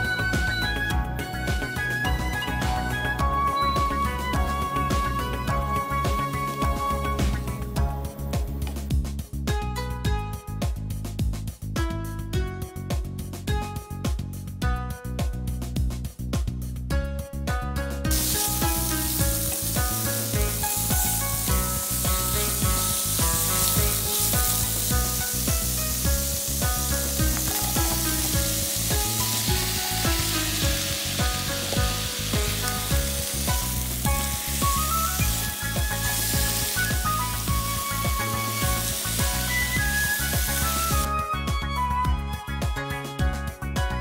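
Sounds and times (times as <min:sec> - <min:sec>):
background music: 0:00.0 - 0:44.0
pork sizzling in a pan: 0:18.1 - 0:41.1.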